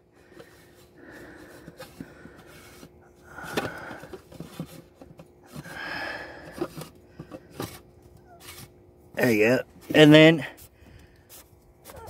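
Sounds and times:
plastic rubbing and scraping: 0:00.2 - 0:12.0.

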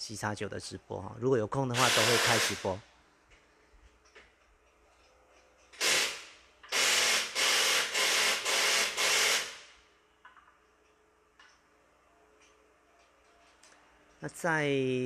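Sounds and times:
impact wrench bursts: 0:01.7 - 0:02.8, 0:05.7 - 0:09.8.

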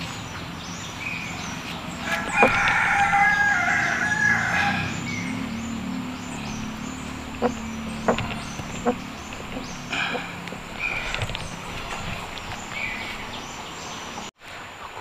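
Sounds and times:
rooster crowing: 0:02.0 - 0:11.0
sharp clicks: 0:02.2 - 0:03.2.

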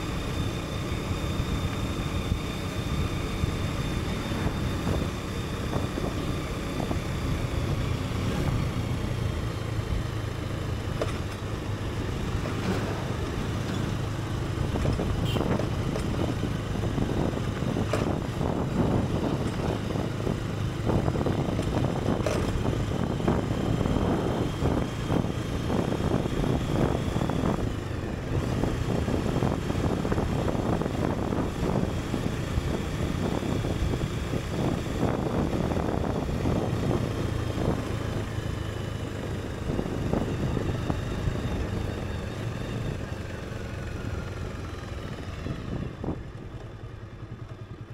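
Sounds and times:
motorcycle engine running: 0:00.0 - 0:47.9.

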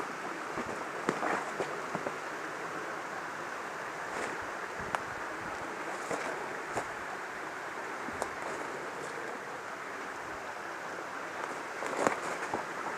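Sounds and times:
stream running over rocks: 0:00.0 - 0:12.9
faint clicks and rustles: 0:00.4 - 0:02.2, 0:04.0 - 0:07.0, 0:11.3 - 0:12.9.

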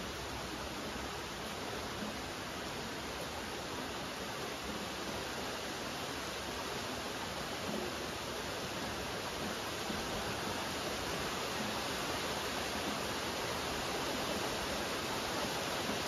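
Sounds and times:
steady rain: 0:00.0 - 0:16.0.

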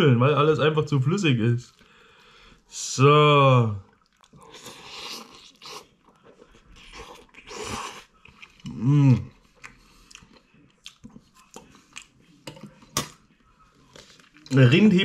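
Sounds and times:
person slurping noodles: 0:04.4 - 0:06.0, 0:06.8 - 0:08.1.

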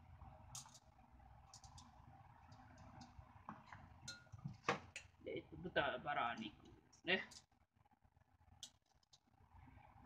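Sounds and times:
low steady hum: 0:00.0 - 0:10.0
utensils clicking and tapping: 0:00.5 - 0:05.1.

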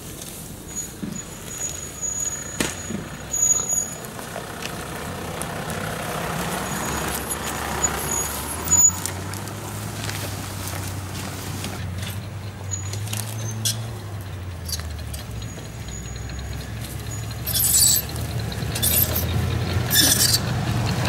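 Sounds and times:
tyres crunching leaf litter: 0:00.0 - 0:15.7
low engine running: 0:00.1 - 0:21.0.

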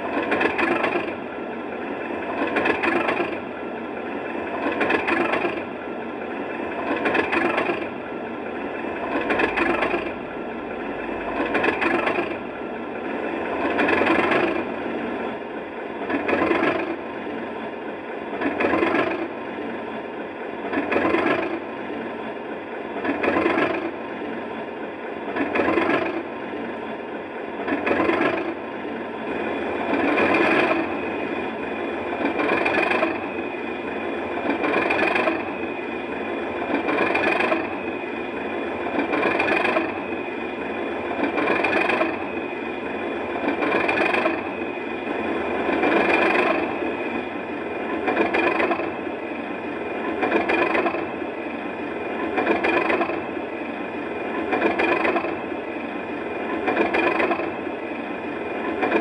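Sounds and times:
diesel engine idling: 0:00.0 - 0:17.1
steady high whine: 0:07.9 - 0:16.1.

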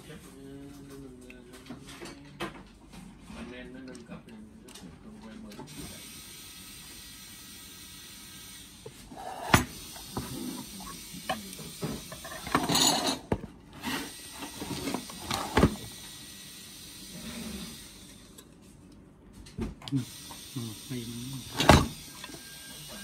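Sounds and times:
steady hiss: 0:20.0 - 0:23.0.

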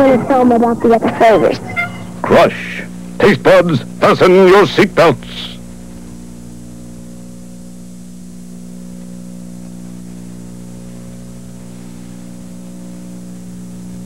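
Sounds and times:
electrical hum: 0:00.0 - 0:14.0
tape hiss: 0:00.0 - 0:14.0.

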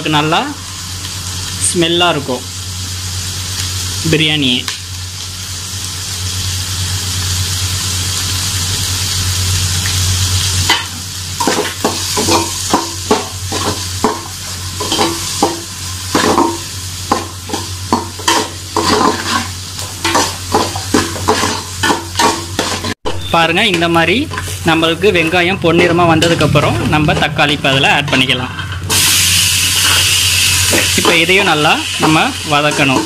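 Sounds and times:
onions sizzling in hot oil: 0:00.0 - 0:27.0, 0:28.0 - 0:33.0
spatula scraping a pot: 0:18.3 - 0:21.6.

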